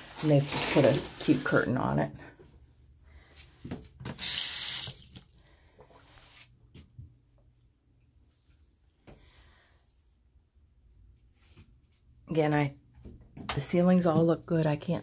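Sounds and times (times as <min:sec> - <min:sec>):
water rushing from a tap: 0:04.1 - 0:05.4.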